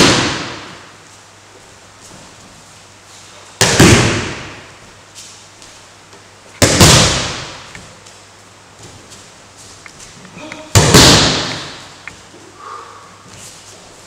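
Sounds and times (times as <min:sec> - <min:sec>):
body slapping onto mat: 0:10.7 - 0:11.8.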